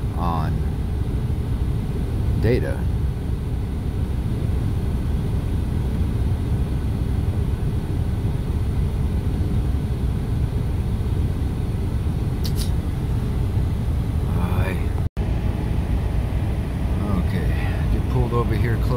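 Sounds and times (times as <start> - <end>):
car engine idling: 0.0 - 18.9
sharp click: 12.4 - 12.8.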